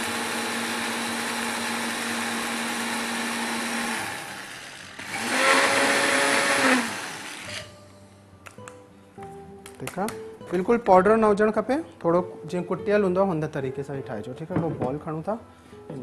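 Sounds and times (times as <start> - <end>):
electric spice grinder grinding: 0.0 - 7.8.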